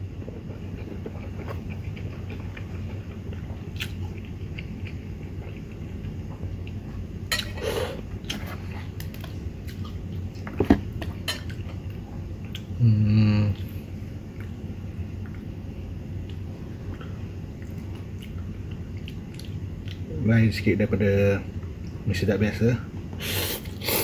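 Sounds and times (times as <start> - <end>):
steady low hum: 0.0 - 24.0
person chewing: 0.2 - 6.8, 12.4 - 12.7, 16.2 - 20.0.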